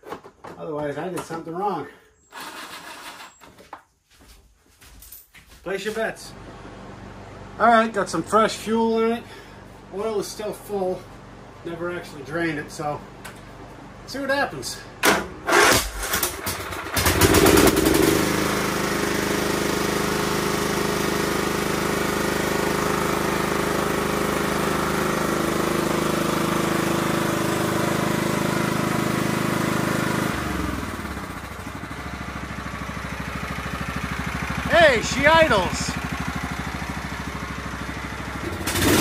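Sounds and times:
starter cranking engine: 0:02.3 - 0:03.4, 0:15.4 - 0:18.4, 0:38.4 - 0:39.0
lawn tractor engine running: 0:15.5 - 0:39.0.

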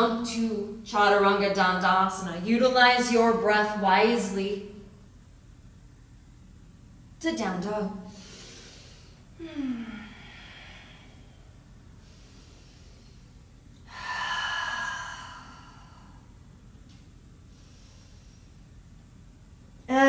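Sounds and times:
person breathing: 0:08.1 - 0:16.4, 0:17.4 - 0:18.8.

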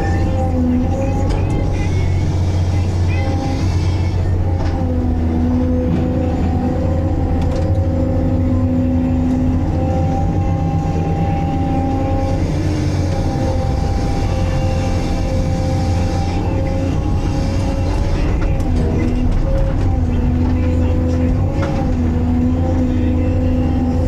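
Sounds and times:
hydraulic whine: 0:00.0 - 0:24.0
low engine hum: 0:00.0 - 0:24.0.

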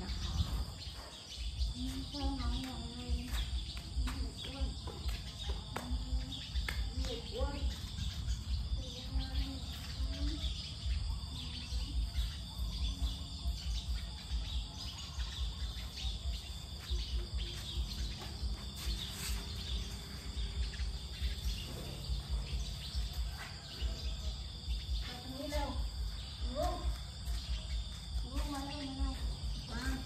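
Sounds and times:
wind on microphone: 0:00.0 - 0:12.0
bird chirps: 0:00.0 - 0:30.0
insects trilling: 0:00.0 - 0:30.0.

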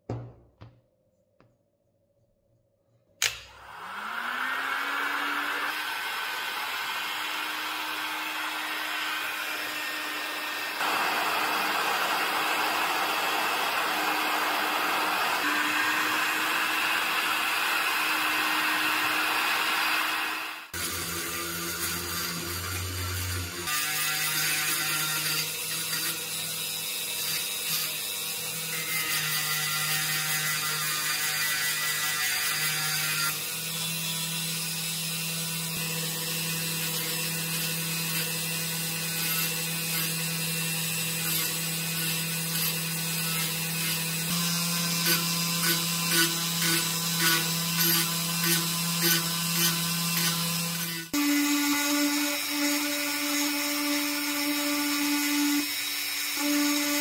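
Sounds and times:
small electric drill running: 0:03.3 - 0:57.0
rotary tool sanding cast iron: 0:36.3 - 0:57.0.

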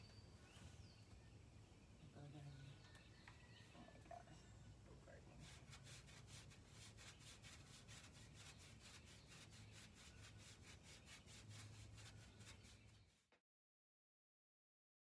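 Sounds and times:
plastic fork scratching horse coat: 0:05.4 - 0:13.3.

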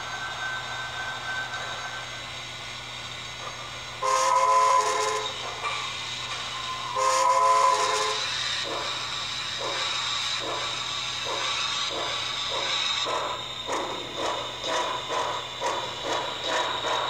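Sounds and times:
model train steam whistle: 0:04.0 - 0:13.9.

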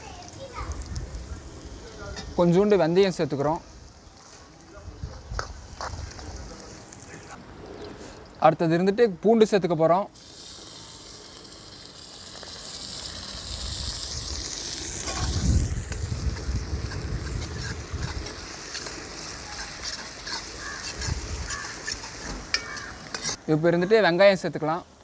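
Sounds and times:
garlic sizzling in oil: 0:00.0 - 0:04.4, 0:10.1 - 0:23.4
ladle scraping pan: 0:16.4 - 0:23.4.

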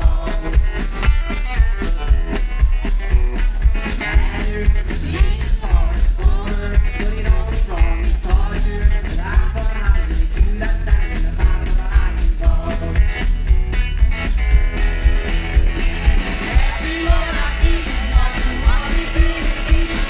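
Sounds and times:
man singing: 0:00.0 - 0:02.2, 0:03.9 - 0:13.1, 0:16.5 - 0:20.0
bass guitar: 0:00.0 - 0:20.0
driving drum beat: 0:00.0 - 0:20.0
electric guitar strumming: 0:10.9 - 0:20.0.

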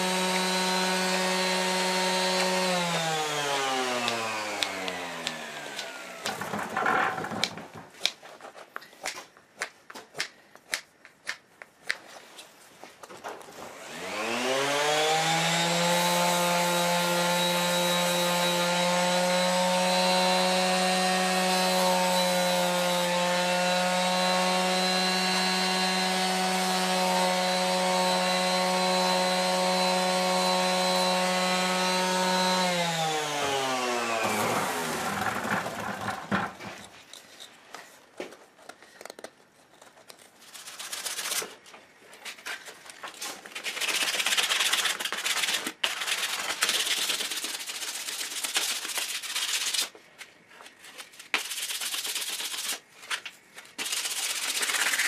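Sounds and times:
electric sander whining: 0:00.0 - 0:07.6, 0:13.7 - 0:36.8.

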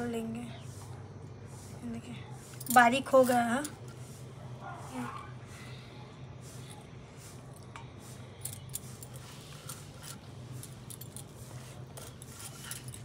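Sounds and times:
low steady hum: 0:00.0 - 0:13.0
bangles clinking: 0:02.5 - 0:04.0, 0:08.3 - 0:13.0.

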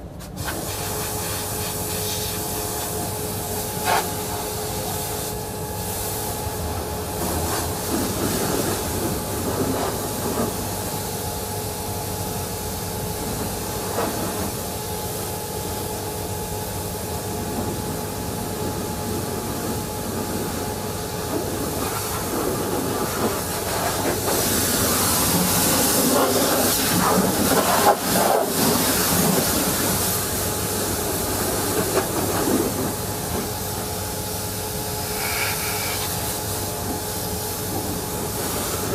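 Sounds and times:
constant hum: 0:00.0 - 0:38.9
pressure washer spraying: 0:00.4 - 0:03.0, 0:03.6 - 0:06.5, 0:21.7 - 0:33.6, 0:34.3 - 0:38.9.

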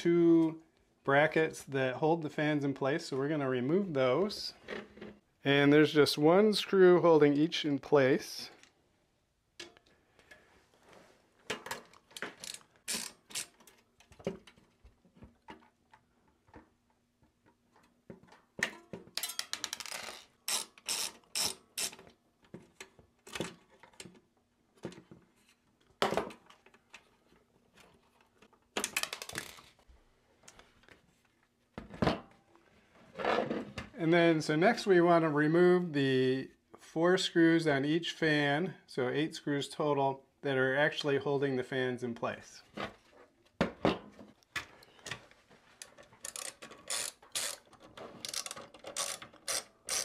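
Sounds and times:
screwdriver clicking: 0:46.2 - 0:47.7, 0:48.3 - 0:50.0.

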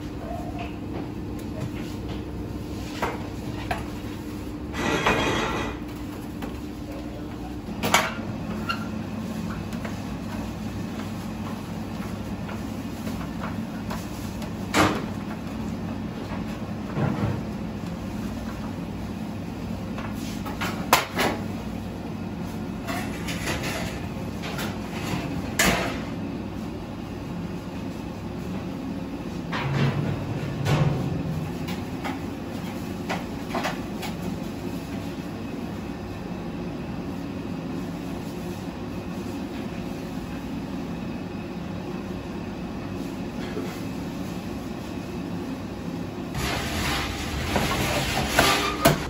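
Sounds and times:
metal baking tray scraping: 0:04.8 - 0:05.8, 0:46.4 - 0:49.0
metal pans and utensils clacking: 0:04.8 - 0:05.8, 0:46.4 - 0:49.0.

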